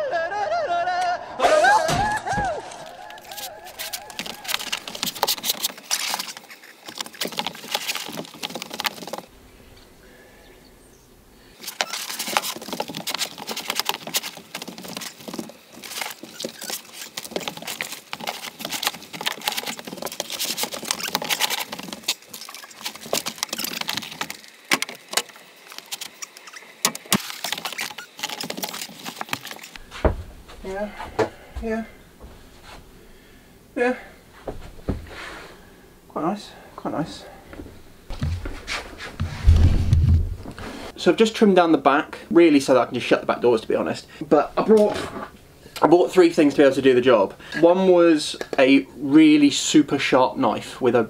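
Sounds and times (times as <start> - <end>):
vinyl sheet rustling and scraping on floor: 2.7 - 9.3, 11.6 - 29.9, 38.1 - 40.9.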